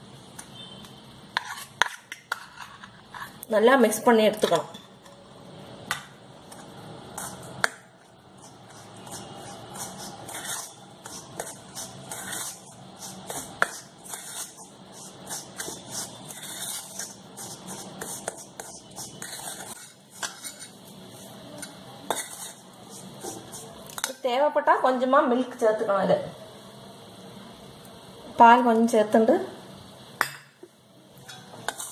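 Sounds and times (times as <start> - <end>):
metal spoon scraping bowl: 1.3 - 3.5, 6.5 - 7.7, 8.4 - 24.2, 31.2 - 31.9.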